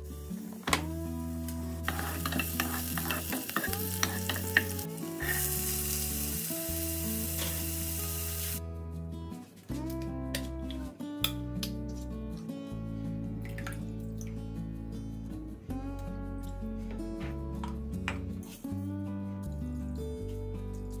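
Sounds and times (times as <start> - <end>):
soft background music: 0.0 - 21.0
onion sizzling in oil: 0.2 - 8.6
wooden spoon scraping a pot: 1.8 - 5.5.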